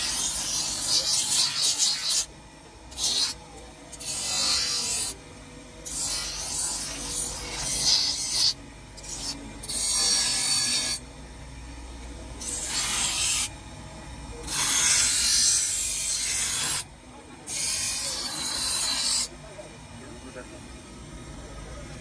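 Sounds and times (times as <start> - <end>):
grinder wheel rasping on knife: 0.0 - 2.3, 2.9 - 5.2, 5.8 - 11.0, 12.4 - 13.5, 14.4 - 16.9, 17.5 - 19.3
grinder motor running: 0.0 - 11.1, 11.8 - 20.5.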